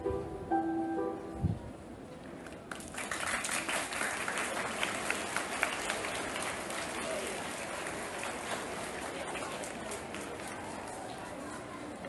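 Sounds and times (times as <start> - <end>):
children applauding: 2.7 - 10.4.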